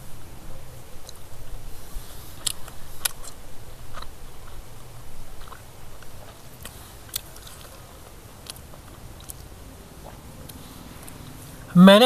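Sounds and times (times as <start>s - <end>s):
person chewing food: 2.0s - 11.6s.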